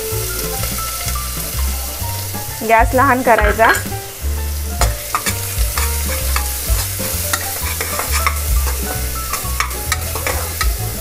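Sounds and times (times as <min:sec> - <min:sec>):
onions sizzling in oil: 0:00.0 - 0:11.0
metal spoon scraping a pot: 0:04.8 - 0:10.8.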